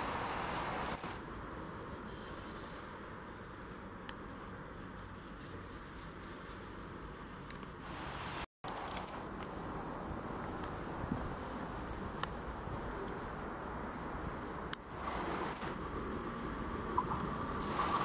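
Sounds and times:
electric train approaching: 0.0 - 1.0, 9.4 - 18.0
thin wheel squeal: 16.9 - 18.0.

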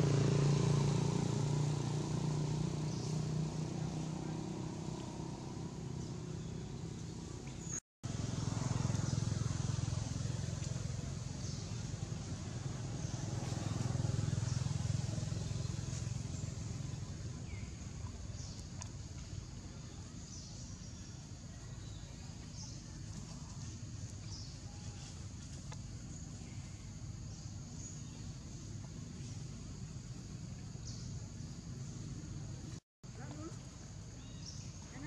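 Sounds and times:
distant traffic rumble: 0.0 - 35.0.

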